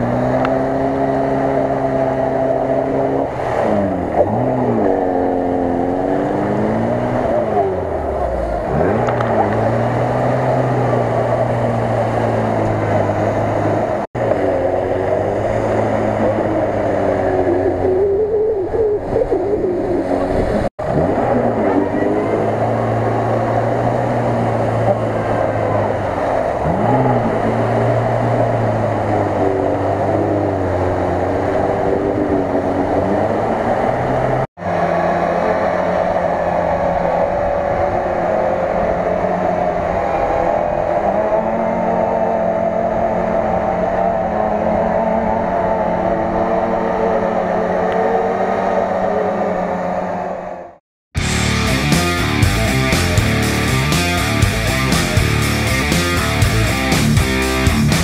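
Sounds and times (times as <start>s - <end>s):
car engine revving under load: 0.0s - 58.0s.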